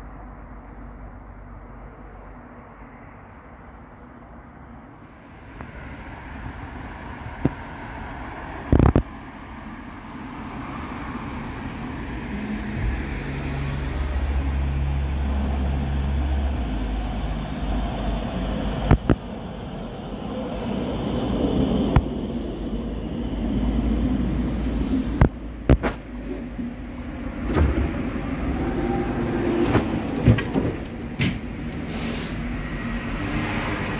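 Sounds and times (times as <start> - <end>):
train rumbling: 0.0 - 33.9.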